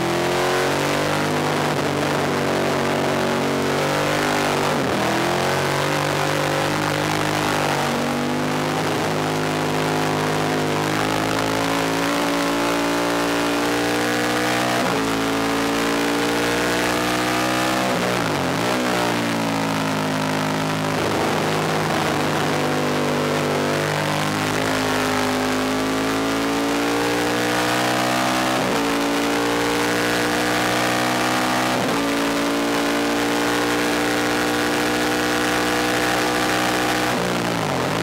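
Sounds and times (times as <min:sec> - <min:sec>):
motorcycle engine at full throttle: 0:00.0 - 0:38.0.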